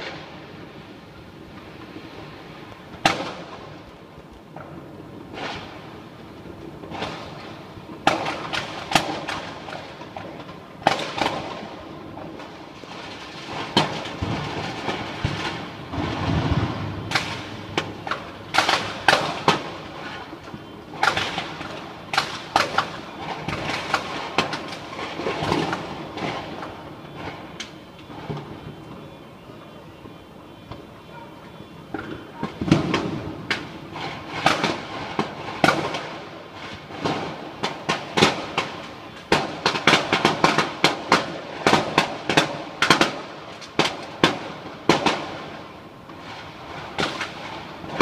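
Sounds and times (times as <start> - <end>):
distant firework blasts: 0.0 - 48.0
firecracker bangs: 3.0 - 3.8, 6.8 - 28.8, 31.9 - 48.0.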